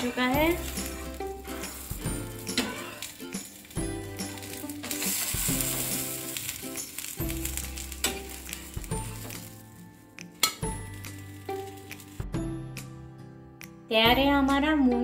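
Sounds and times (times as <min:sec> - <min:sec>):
spatula scraping griddle: 0:00.0 - 0:09.7
food sizzling on griddle: 0:00.0 - 0:12.5
background music: 0:00.0 - 0:15.0.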